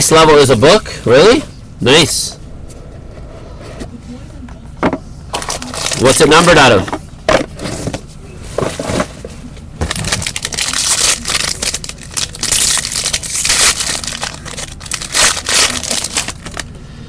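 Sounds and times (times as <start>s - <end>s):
foil wrapper crackling: 5.4s - 6.4s, 9.8s - 16.7s.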